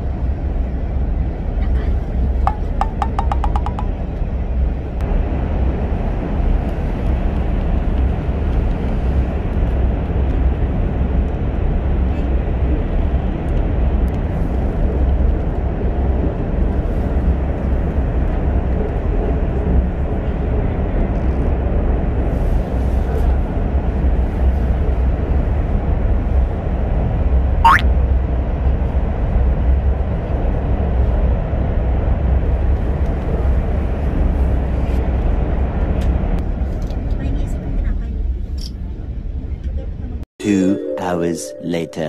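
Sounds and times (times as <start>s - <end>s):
train rumble and hiss: 0.0s - 2.5s, 4.5s - 27.4s.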